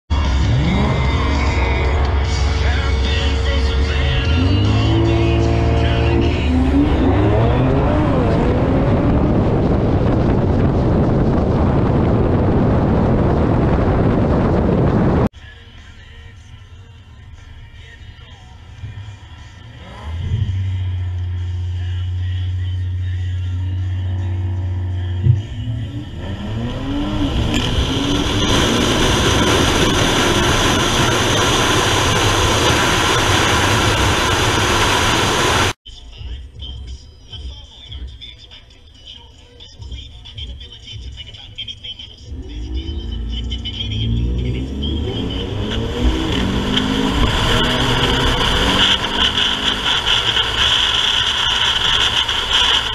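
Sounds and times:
car engine at full throttle: 0.1s - 15.3s, 18.8s - 23.0s, 23.7s - 35.8s, 42.2s - 52.9s
loud wind rush: 6.5s - 15.3s, 26.0s - 35.8s, 45.4s - 50.6s
heavy wind noise: 6.7s - 15.3s.

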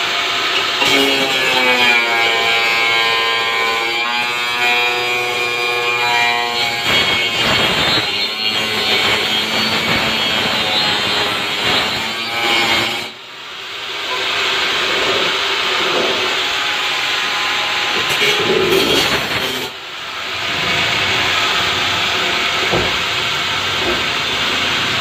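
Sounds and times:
angle grinder cutting plastic: 0.5s - 13.2s, 14.5s - 19.8s.

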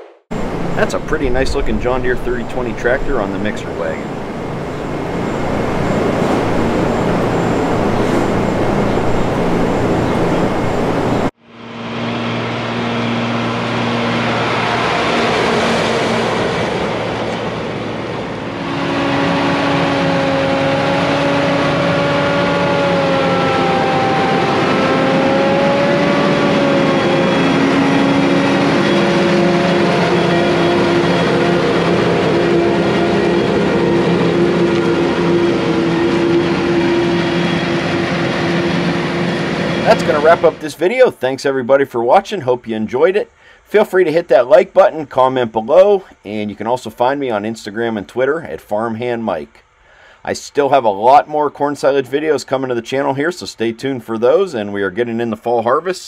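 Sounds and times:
wavering whine: 0.0s - 41.4s
farm machinery hum: 0.3s - 52.3s.

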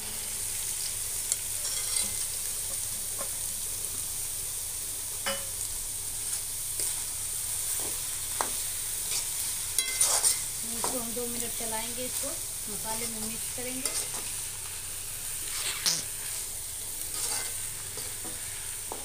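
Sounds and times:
food sizzling in oil: 0.0s - 19.0s
metal ladle scraping pan: 9.8s - 10.4s, 17.1s - 18.1s.

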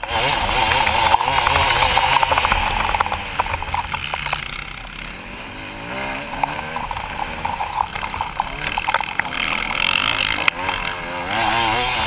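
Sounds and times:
motocross bike engine revving: 0.0s - 12.0s
ticks and rattles: 0.2s - 5.2s, 6.0s - 11.0s.

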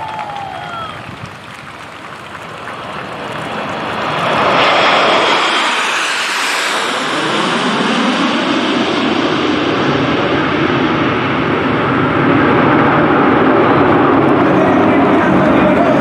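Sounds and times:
jets flying over low: 0.0s - 16.0s.

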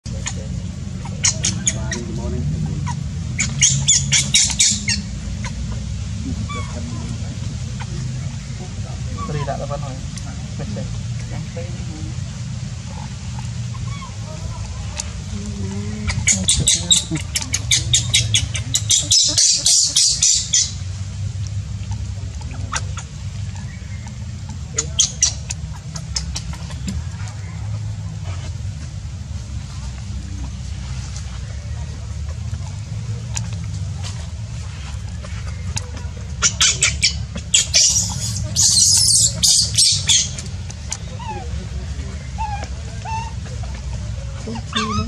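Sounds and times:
baby monkey squeaking: 0.1s - 5.6s, 6.4s - 6.8s, 9.1s - 9.6s, 12.9s - 15.1s, 15.9s - 20.8s, 22.6s - 26.9s, 36.3s - 41.5s, 42.2s - 45.0s.

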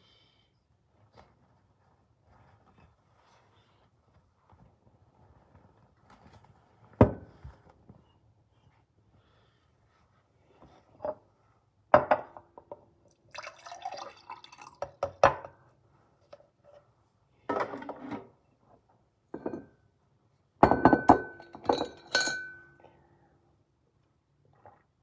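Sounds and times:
glassware and dishes clinking: 19.4s - 19.8s, 20.6s - 22.8s.

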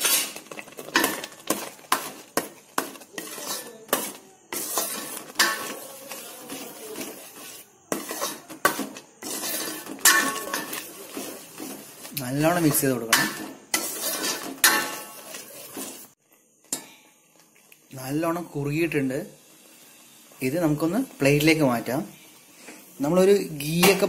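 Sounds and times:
metal spoon scraping steel pan: 0.0s - 16.2s.

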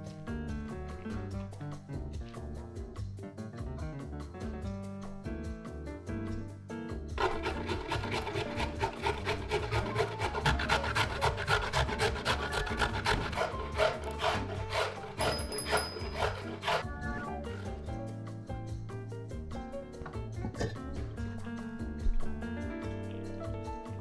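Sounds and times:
background music: 0.0s - 24.0s
carrot rasping on grater: 7.2s - 16.9s.

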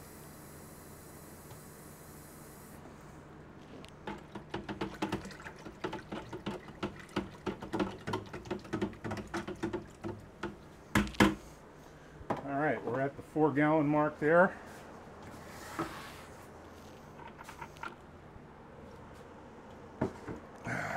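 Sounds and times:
liquid splashing while stirred: 4.0s - 11.1s
faucet running into bucket: 4.1s - 10.6s.

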